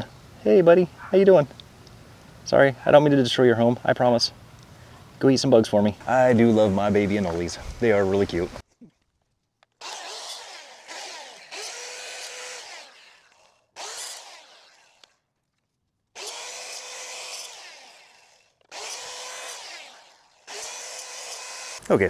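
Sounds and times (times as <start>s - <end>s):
miter saw motor humming: 9.8s - 15.2s, 16.2s - 21.9s.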